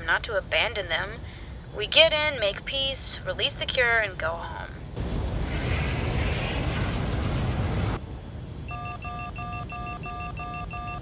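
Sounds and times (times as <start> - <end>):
steady rushing roar: 4.9 - 8.7
rapid electronic warning beeps: 8.7 - 11.0.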